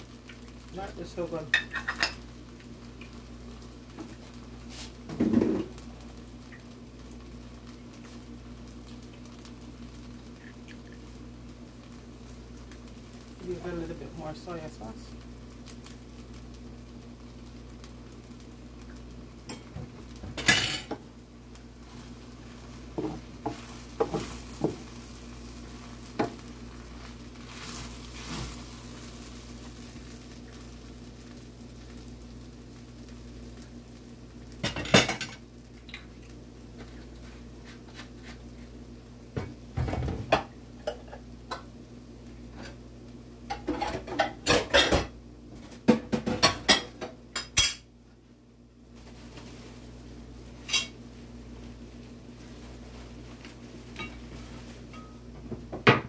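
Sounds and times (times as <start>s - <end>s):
utensil scraping rice in a pan: 4.6s - 5.0s, 26.8s - 29.8s, 37.2s - 38.7s.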